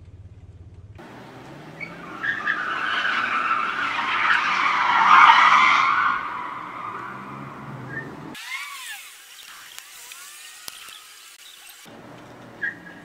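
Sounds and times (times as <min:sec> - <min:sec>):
car tyres squealing: 0:01.0 - 0:09.0, 0:10.7 - 0:13.0.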